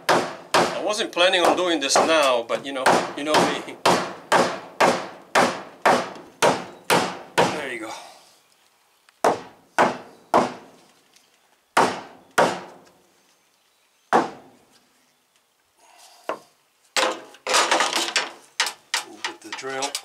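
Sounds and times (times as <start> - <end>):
hammer striking wood: 0.0 - 0.8, 1.4 - 7.6, 9.2 - 10.6, 11.8 - 12.8, 14.1 - 14.4
scraping rubbing and knocking: 17.0 - 20.0.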